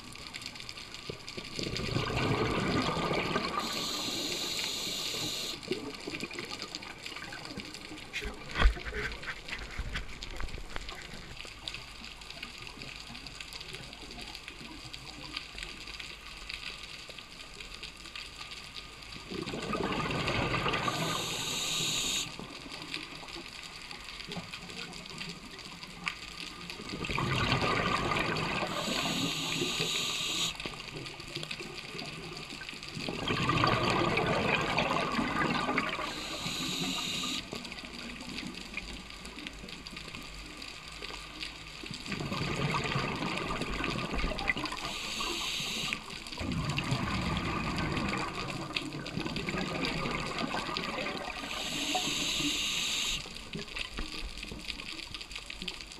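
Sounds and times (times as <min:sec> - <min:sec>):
underwater regulator bubbling: 0:19.5 - 0:22.3, 0:27.1 - 0:30.6, 0:33.2 - 0:37.4, 0:42.4 - 0:48.4, 0:49.5 - 0:53.2.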